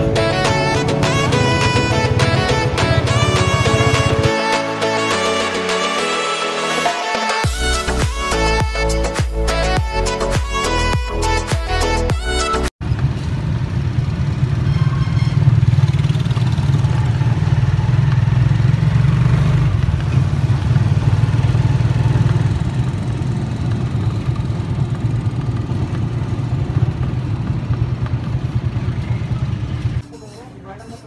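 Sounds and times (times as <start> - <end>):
road noise: 0.0 - 6.8, 12.8 - 31.0
motorcycle engine running: 0.6 - 4.3, 12.8 - 30.0.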